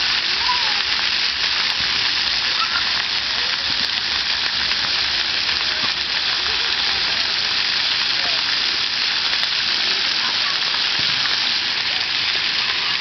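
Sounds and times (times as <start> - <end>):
water jets spraying on concrete: 0.0 - 13.0.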